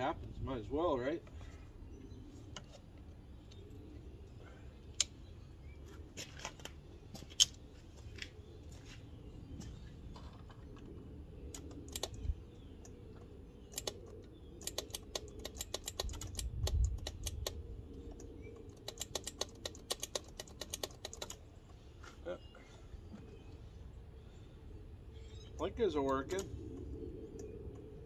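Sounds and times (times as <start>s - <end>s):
sharp clicks: 4.9s - 5.2s, 11.5s - 21.4s
starter solenoid clicking rapidly: 14.6s - 17.6s, 18.8s - 21.4s.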